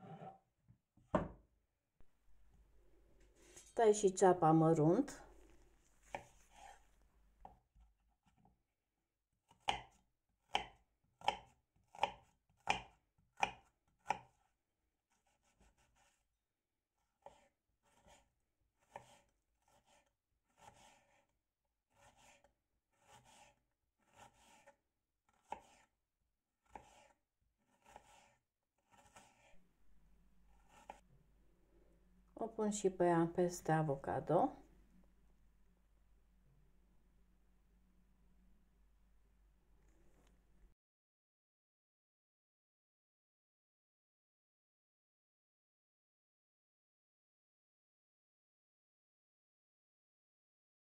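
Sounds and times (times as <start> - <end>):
knife chopping on wooden board: 1.2 - 1.4, 6.1 - 6.8, 9.5 - 14.4, 17.2 - 21.2, 21.9 - 25.9, 26.6 - 29.5.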